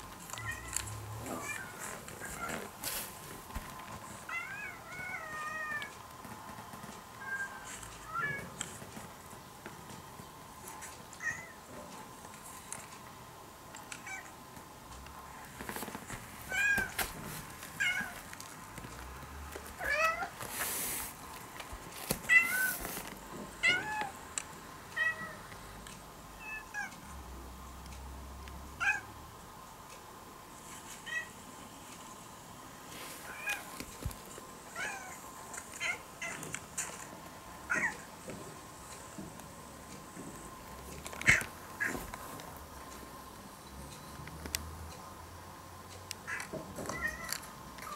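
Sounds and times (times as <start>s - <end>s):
recorded cat meows: 46.3s - 47.9s.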